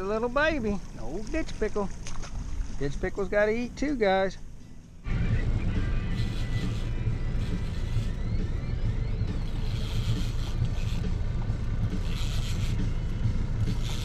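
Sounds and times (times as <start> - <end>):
wind and water rushing: 0.0 - 4.5
boat motor humming: 0.0 - 14.0.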